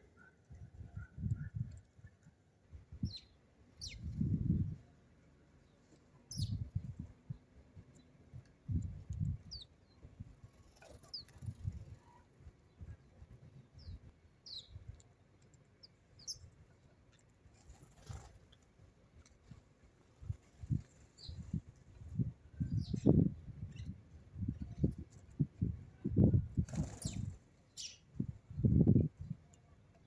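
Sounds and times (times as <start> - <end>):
sparrows chirping: 3.0 - 4.8, 5.6 - 8.1, 9.4 - 13.0, 13.6 - 14.9, 15.8 - 16.9, 21.0 - 21.6, 22.6 - 25.0, 26.8 - 29.4.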